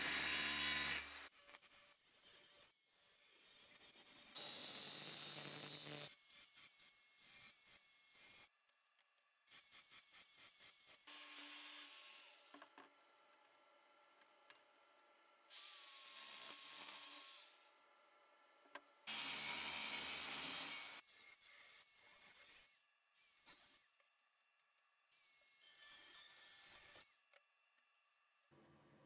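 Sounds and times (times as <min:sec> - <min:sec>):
angle grinder cutting steel: 0:00.0 - 0:08.5, 0:19.1 - 0:23.9.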